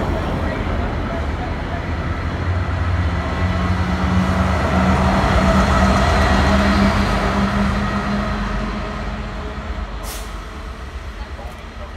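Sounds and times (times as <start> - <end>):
diesel train engine drone: 0.0 - 11.9.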